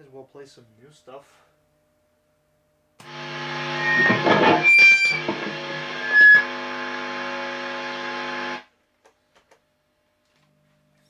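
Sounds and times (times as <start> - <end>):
bright guitar squeals: 3.0 - 8.6
distorted electric guitar chord: 3.0 - 8.6
guitar string scrapes and handling noise: 3.1 - 7.2.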